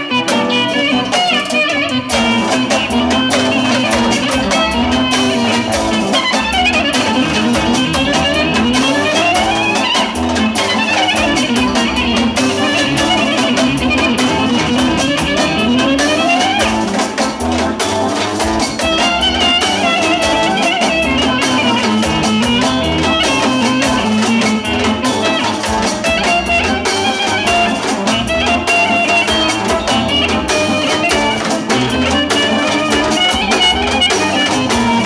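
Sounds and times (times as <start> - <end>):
clarinet melody: 0.0 - 35.0
drums played with sticks: 0.0 - 35.0.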